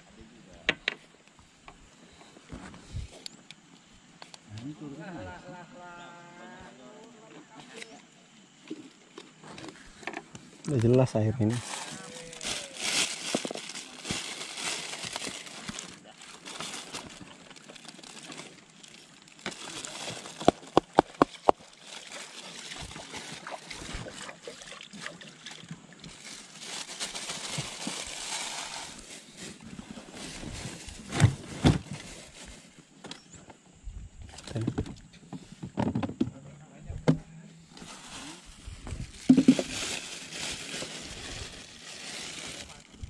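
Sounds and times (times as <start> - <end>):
rustling handling noise: 8.7 - 24.2, 25.9 - 33.3, 37.7 - 43.0.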